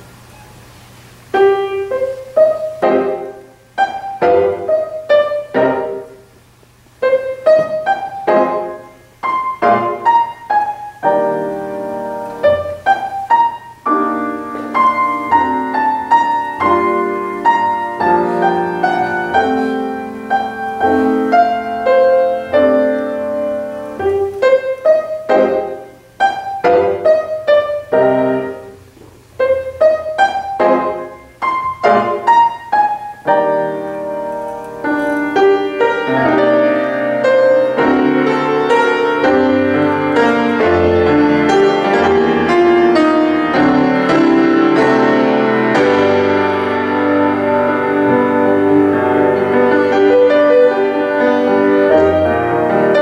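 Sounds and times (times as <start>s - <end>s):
solo grand piano: 0.0s - 53.0s.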